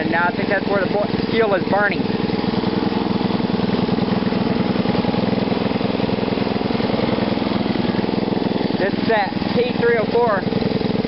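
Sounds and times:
lawn mower engine running: 0.0 - 11.0.

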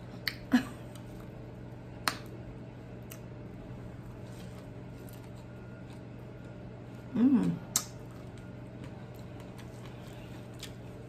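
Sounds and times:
steady low hum: 0.0 - 11.0
mouth clicks and smacks eating: 0.1 - 0.5, 3.0 - 3.3, 7.6 - 8.1.

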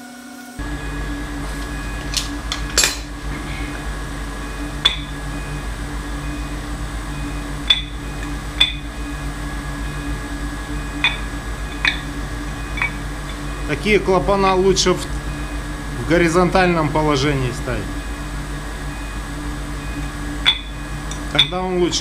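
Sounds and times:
steady low hum: 0.0 - 22.0
metal clinks and knocks: 2.0 - 3.5, 12.7 - 13.4.

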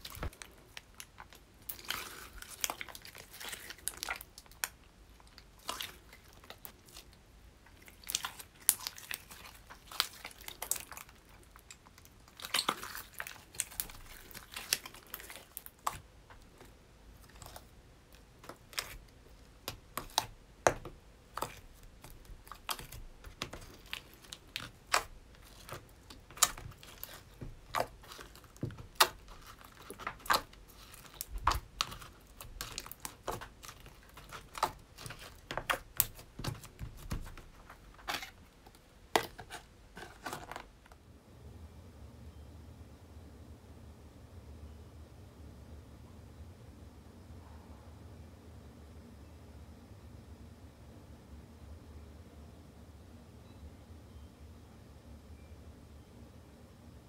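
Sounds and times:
slime squeezed with sticky pops: 12.3 - 16.0, 19.6 - 38.3
fingers poking slime in tub: 18.4 - 38.4.

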